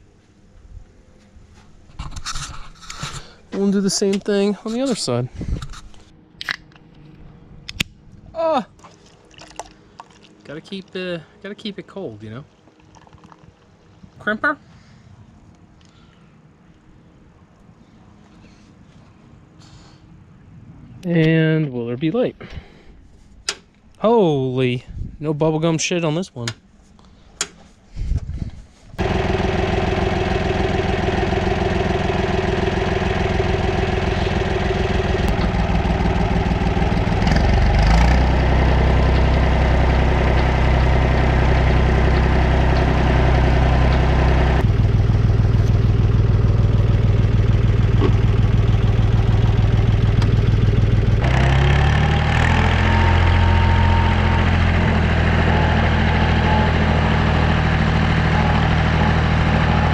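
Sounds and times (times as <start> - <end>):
tractor diesel engine running: 29.0 - 59.9.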